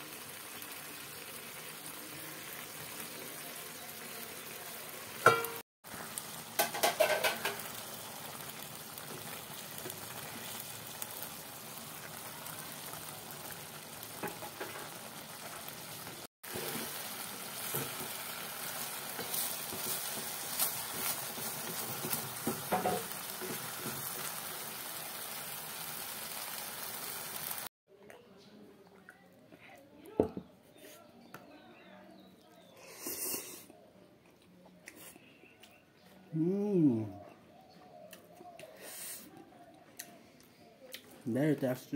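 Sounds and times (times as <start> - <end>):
noodles sizzling in a pot: 0.0 - 27.7
wooden spatula scraping pot: 19.1 - 24.1.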